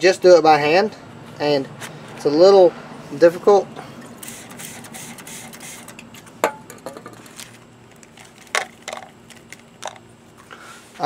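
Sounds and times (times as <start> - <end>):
hissing spray into plastic cup: 4.2 - 6.0.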